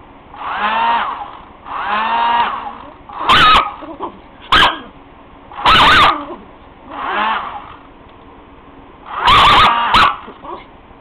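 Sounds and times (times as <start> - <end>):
loud harsh dog sounds: 2.7 - 5.0, 5.6 - 7.7, 9.1 - 10.7.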